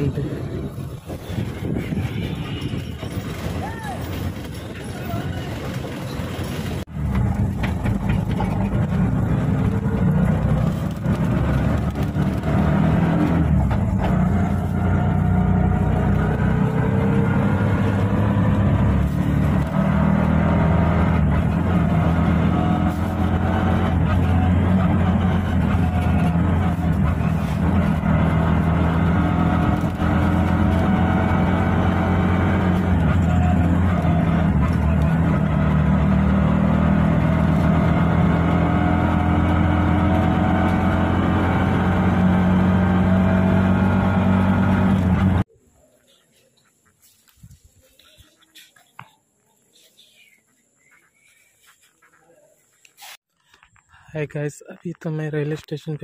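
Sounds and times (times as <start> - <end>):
small engine droning: 6.4 - 45.5.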